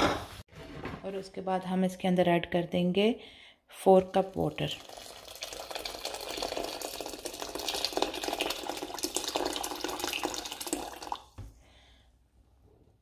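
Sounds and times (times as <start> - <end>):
water pouring into a pot: 4.1 - 11.4.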